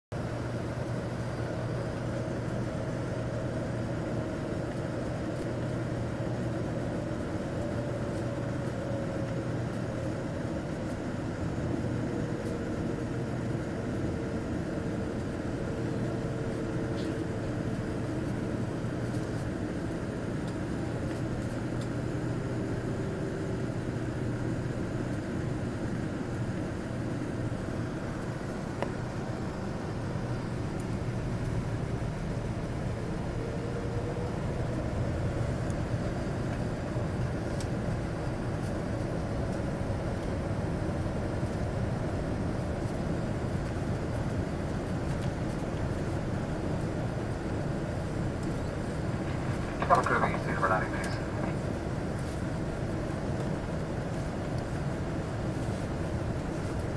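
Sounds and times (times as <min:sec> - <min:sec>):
jet engine and airflow drone: 0:00.1 - 0:56.9
faint falling whine: 0:48.1 - 0:52.4.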